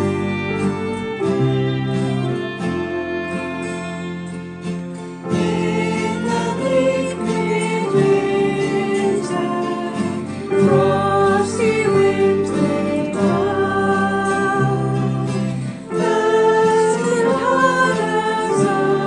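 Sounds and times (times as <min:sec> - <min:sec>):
acoustic guitar: 0:00.0 - 0:19.0
piano: 0:00.0 - 0:19.0
women singing together: 0:05.4 - 0:19.0.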